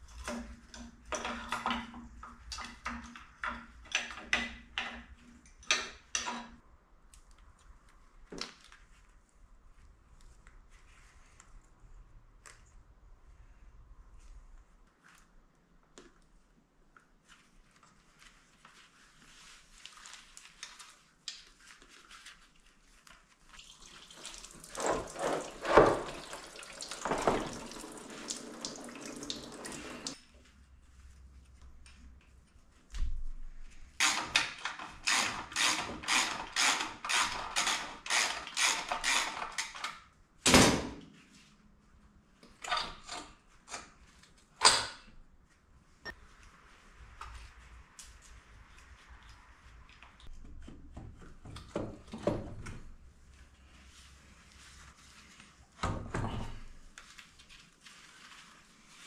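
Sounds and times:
ratchet strokes: 34.0 - 39.8.

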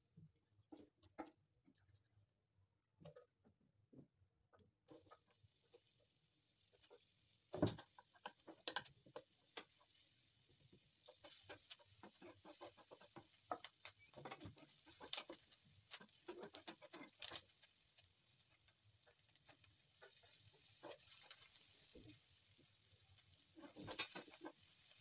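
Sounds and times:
onions sizzling in oil: 4.9 - 25.0
metal spoon scraping frying pan: 23.6 - 24.7.

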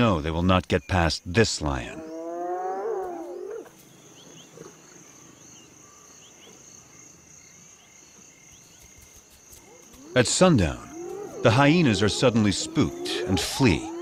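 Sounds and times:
high insect drone: 1.7 - 14.0
short insect chirps: 3.0 - 11.4
hyena cry: 10.0 - 14.0.

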